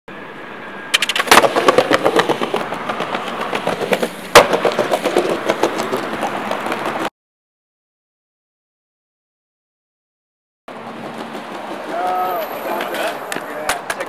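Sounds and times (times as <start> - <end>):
skateboard clacking on ground: 0.9 - 7.1, 10.8 - 14.0
skateboard wheels rattling over tiles: 1.0 - 7.1, 10.8 - 14.0.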